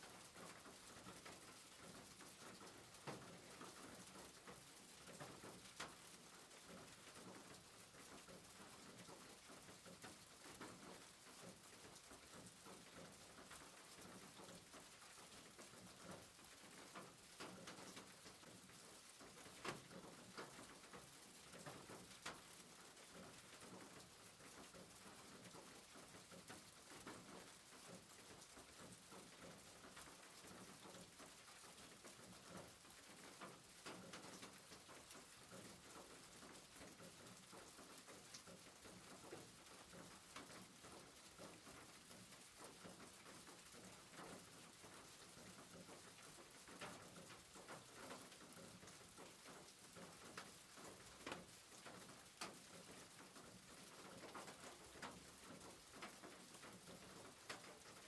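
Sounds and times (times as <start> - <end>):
faint steady rain: 0.0 - 58.0
raindrops pattering: 0.0 - 58.0.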